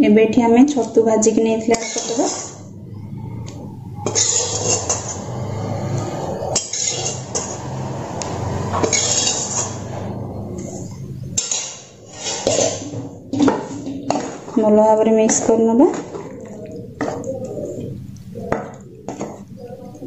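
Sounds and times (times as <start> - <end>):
spoon clinking and scraping: 4.0 - 5.4, 6.5 - 7.7, 8.8 - 9.9, 10.6 - 13.0.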